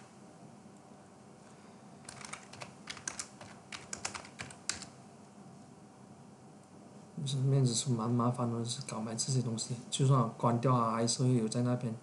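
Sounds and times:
computer keyboard typing: 0:02.0 - 0:04.9.

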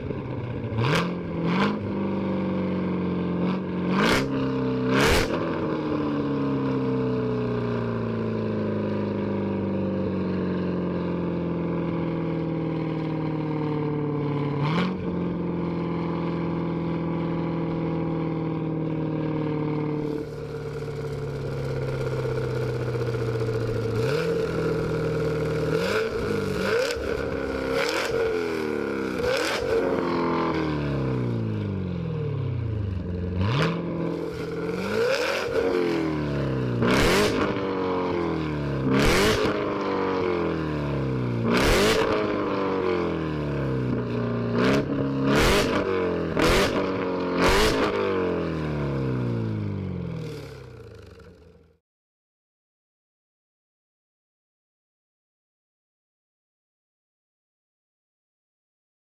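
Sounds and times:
car engine revving: 0:00.0 - 0:05.9, 0:14.4 - 0:17.4, 0:18.4 - 0:40.5, 0:41.4 - 0:43.1, 0:43.9 - 0:48.3
exhaust cracks: 0:20.0 - 0:28.4.

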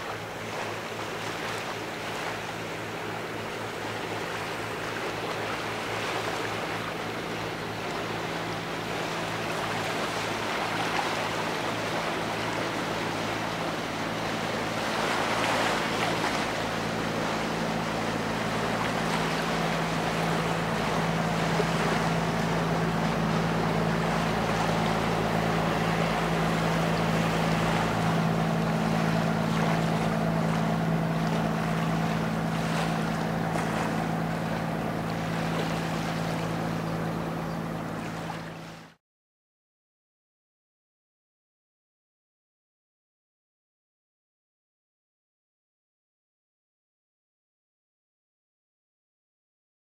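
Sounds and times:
boat engine humming: 0:00.0 - 0:39.0
water rushing from wake: 0:00.0 - 0:39.0.

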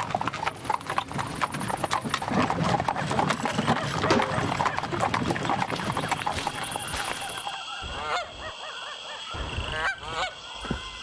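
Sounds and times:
horse hooves clip-clopping: 0:00.0 - 0:07.5.

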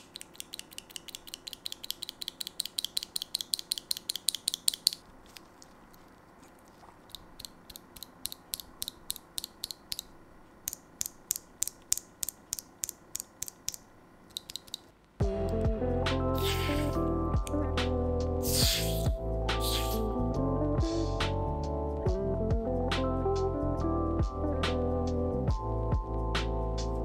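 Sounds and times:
keyboard switch clacking: 0:00.0 - 0:05.0, 0:07.1 - 0:10.1.

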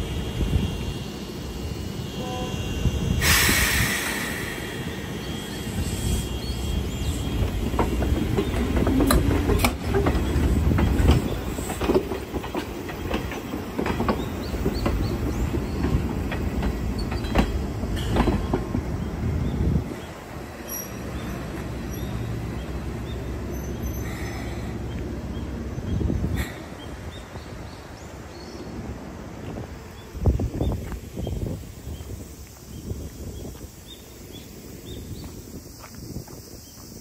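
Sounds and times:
electric train rumbling: 0:00.0 - 0:37.0
hiss burst: 0:03.2 - 0:07.3
wheels clicking over rail joints: 0:07.2 - 0:27.8.

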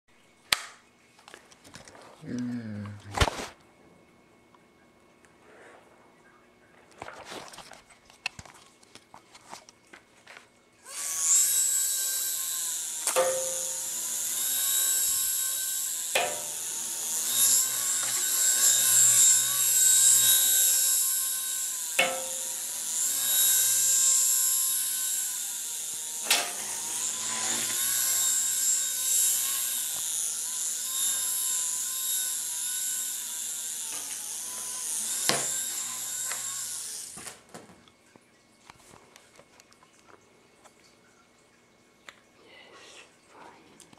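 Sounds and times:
toy helicopter rotors whining: 0:10.8 - 0:37.3.

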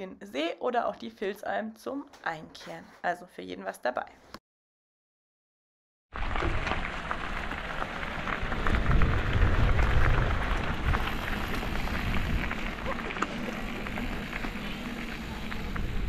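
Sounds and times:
bike tyres rolling on gravel: 0:06.2 - 0:16.0
wind rumbling on microphone: 0:06.2 - 0:16.0.

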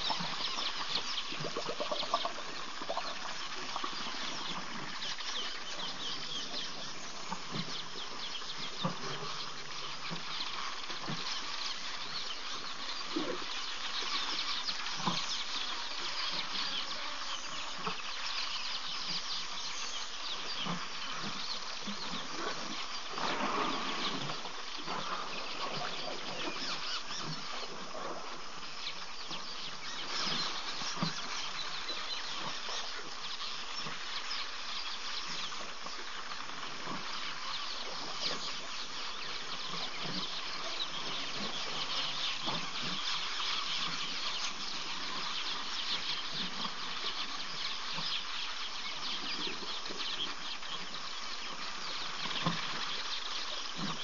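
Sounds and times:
insects hissing: 0:00.0 - 0:47.6
fine crackling: 0:23.0 - 0:26.7.

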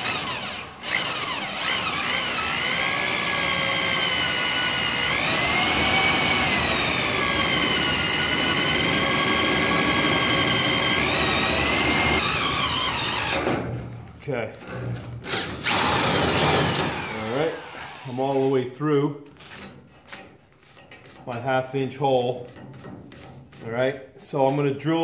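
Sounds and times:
electric drill boring through steel: 0:00.0 - 0:13.5, 0:15.4 - 0:18.5.

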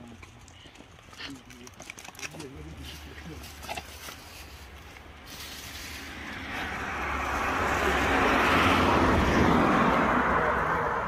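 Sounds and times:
vehicle driving past: 0:05.2 - 0:11.0.

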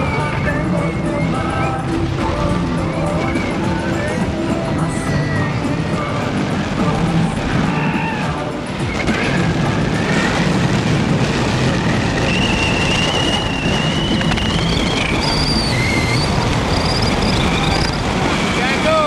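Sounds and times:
high whistle-like tone: 0:00.0 - 0:03.8, 0:12.1 - 0:18.0
wind and road noise: 0:00.0 - 0:19.0.

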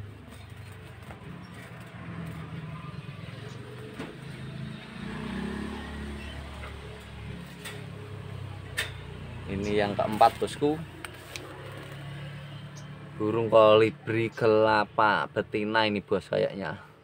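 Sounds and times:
motor vehicle rumbling: 0:00.0 - 0:17.0
clicks from wire birdcage: 0:08.7 - 0:09.1.

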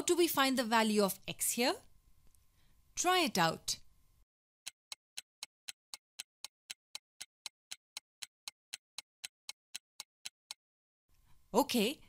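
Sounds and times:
clock-like ticking: 0:04.6 - 0:10.6.

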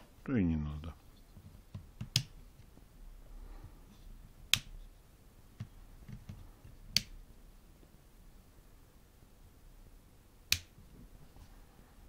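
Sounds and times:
light switch clicks: 0:10.5 - 0:10.7.

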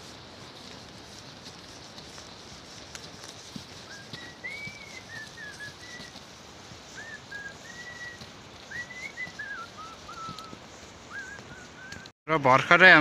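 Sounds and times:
person whistling: 0:03.9 - 0:06.1, 0:06.9 - 0:12.1.

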